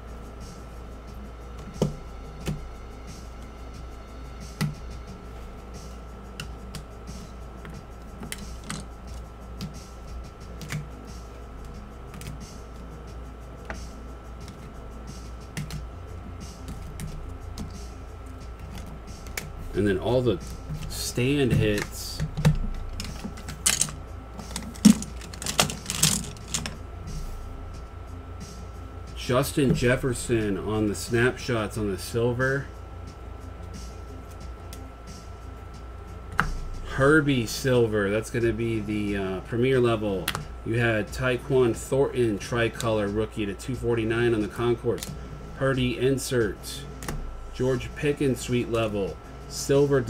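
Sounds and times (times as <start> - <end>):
steady low hum: 0.0 - 50.0
plastic card cases clacking: 21.5 - 26.8.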